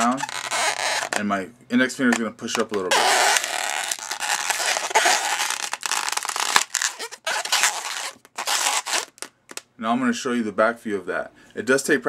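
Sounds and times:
balloon rubbing and crackling: 0.0s - 1.4s, 2.0s - 9.6s.

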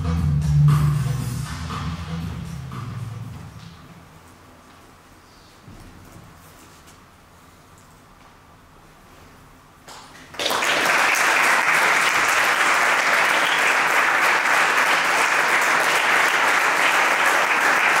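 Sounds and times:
audience clapping: 9.9s - 18.0s.

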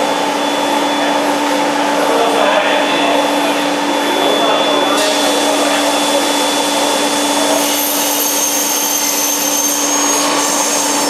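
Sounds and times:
blower humming with rushing air: 0.0s - 11.0s
thin high whistle: 3.9s - 11.0s.

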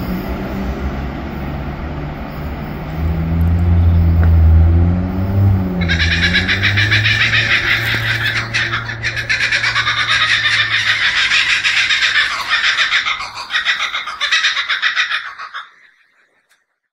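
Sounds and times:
rapidly pulsing animal chorus: 5.8s - 16.2s.

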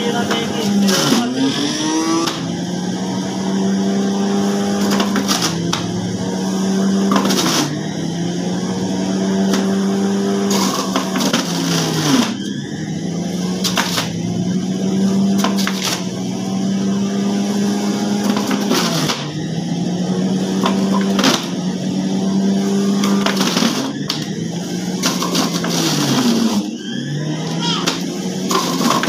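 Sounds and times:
juicer motor humming: 0.0s - 29.0s.

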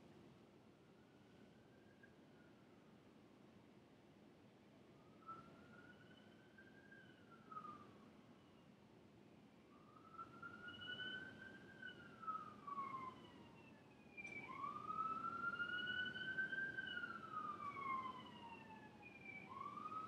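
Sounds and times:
faint siren wailing: 4.9s - 8.0s, 9.7s - 20.0s.

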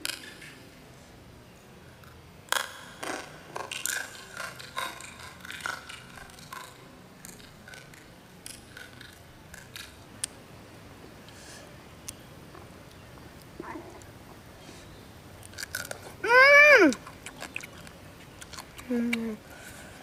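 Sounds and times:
crab shells crunching and cracking: 2.5s - 10.0s, 15.4s - 16.1s, 16.9s - 18.9s.

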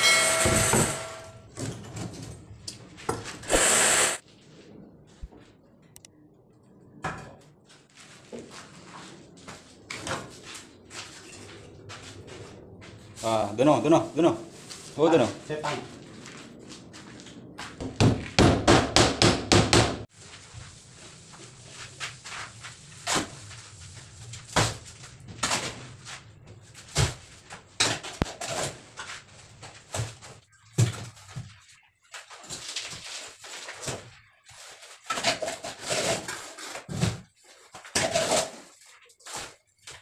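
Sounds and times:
hammer striking wood: 17.8s - 20.0s.

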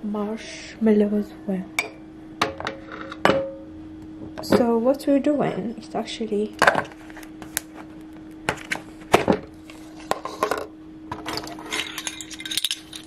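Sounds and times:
faint steady hum: 0.0s - 13.0s
rustling and scraping: 6.8s - 10.6s.

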